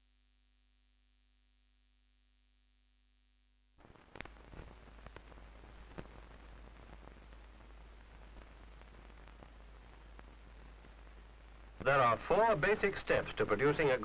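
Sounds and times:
crackles and pops: 2.4 - 14.0
film soundtrack hiss: 3.8 - 14.0.

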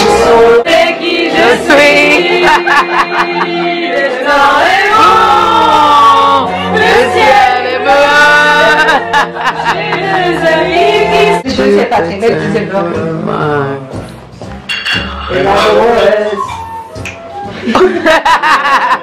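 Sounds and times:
several voices singing: 0.0 - 13.9, 15.3 - 16.5.

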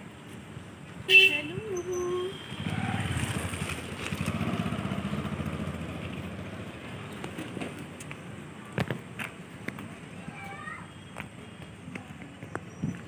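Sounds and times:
motor vehicle engine rumbling: 1.5 - 8.6.

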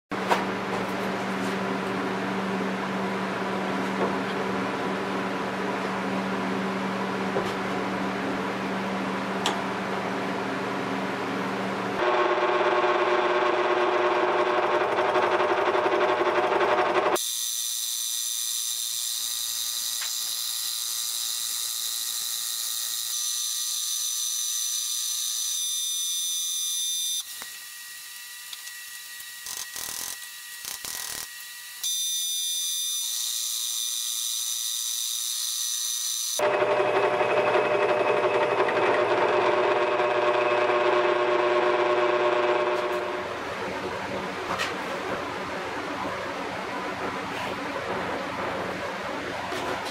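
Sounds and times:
milling machine hum: 0.5 - 25.6, 27.0 - 49.9
high-pitched cutting whine: 12.0 - 43.4.

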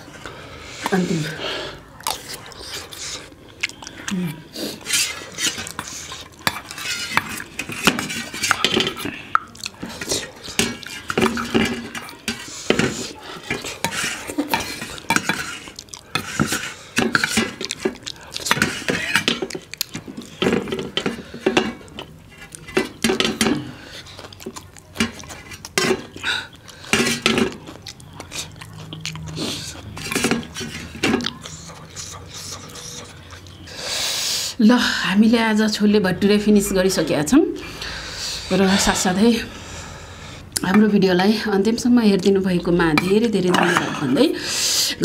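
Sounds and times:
mouth sounds of eating: 0.6 - 20.6, 23.4 - 34.6
metal spoon scraping steel bowls: 4.7 - 19.6, 28.2 - 33.7.

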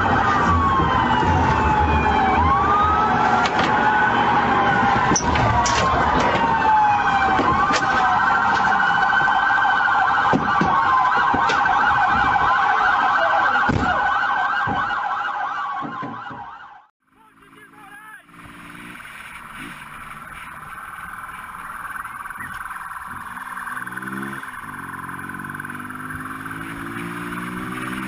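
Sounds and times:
police siren wailing: 0.0 - 28.0
dull knocks: 15.8 - 16.6.

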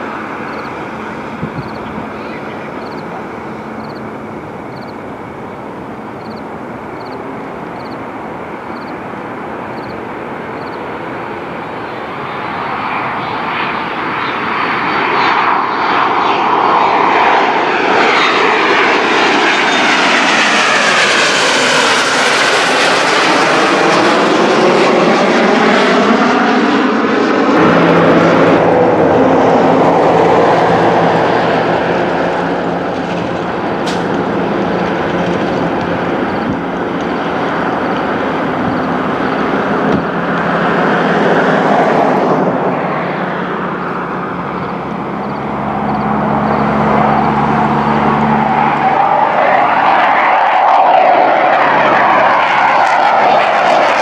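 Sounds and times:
fighter jet climbing: 0.0 - 54.0
jet aircraft flying past: 0.0 - 54.0.

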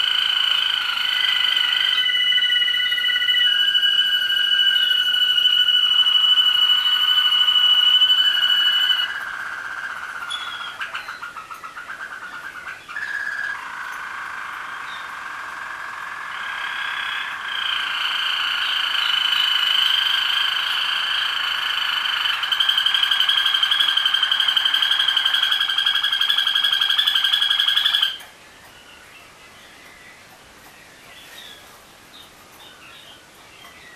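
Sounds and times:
canaries singing rolling trills: 0.0 - 33.9.

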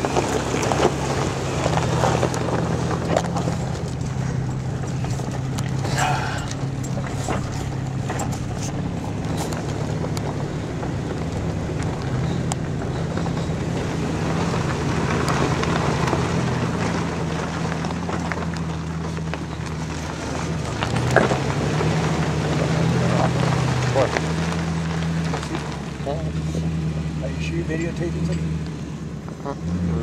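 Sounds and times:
car engine droning: 0.0 - 30.0
tyres on gravel: 0.0 - 30.0
small knocks and rattles: 0.1 - 21.9.

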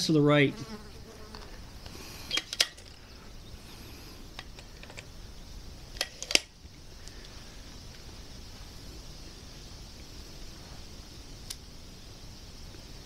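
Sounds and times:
air rifle mechanical clicks: 2.3 - 3.0, 5.9 - 7.4.

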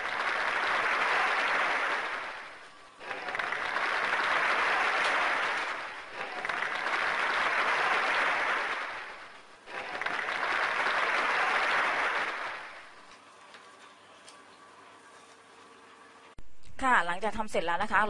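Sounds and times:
applause: 0.0 - 13.2.

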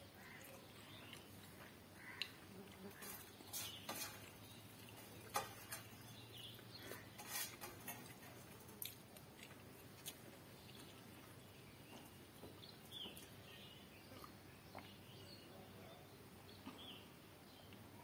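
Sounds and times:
person eating by hand: 0.1 - 15.2
fingers mixing food on steel plate: 1.1 - 11.4.

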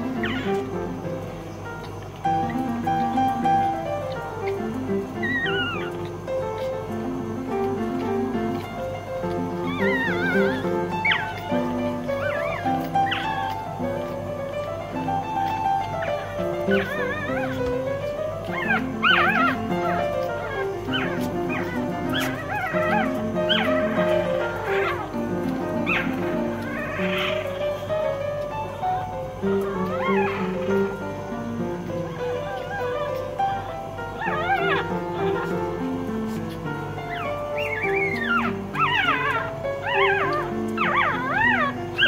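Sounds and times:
puppies whimpering and squeaking: 0.0 - 42.0.

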